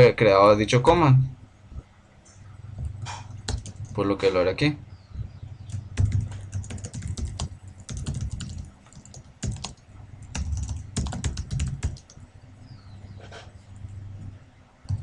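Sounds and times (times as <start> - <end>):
typing on computer keyboard: 3.4 - 4.0, 5.7 - 12.2.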